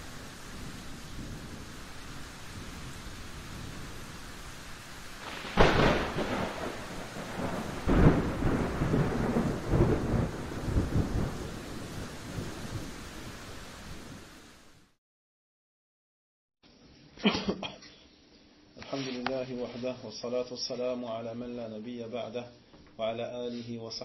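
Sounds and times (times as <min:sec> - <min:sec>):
sharp thunderclap: 0:00.0 - 0:04.2, 0:05.2 - 0:14.1
rolling rumble of thunder: 0:00.0 - 0:14.3
steady rain hiss: 0:00.0 - 0:15.0, 0:18.6 - 0:24.0.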